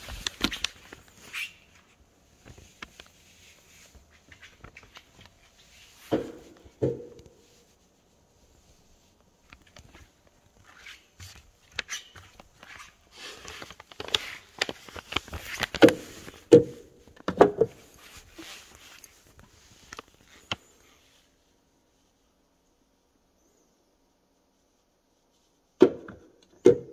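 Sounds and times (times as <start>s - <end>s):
rustling: 0.0s - 23.7s
person moving about knocking: 6.0s - 7.4s.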